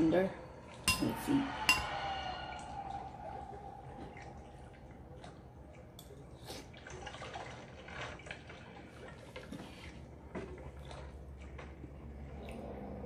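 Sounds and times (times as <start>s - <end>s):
low steady hum: 0.0s - 13.0s
wet slurping: 3.0s - 13.0s.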